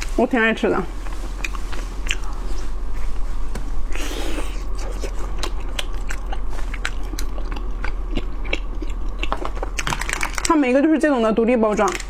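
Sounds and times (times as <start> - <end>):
low electrical hum: 0.0 - 12.0
chewing sticky rice cake: 0.9 - 3.2, 3.9 - 10.4.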